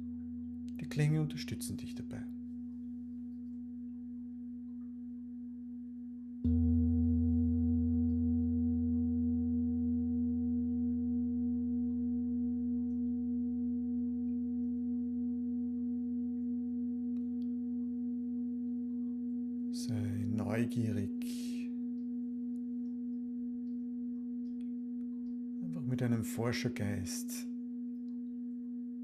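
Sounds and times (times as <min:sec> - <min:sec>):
singing bowl ringing: 0:02.4 - 0:19.8.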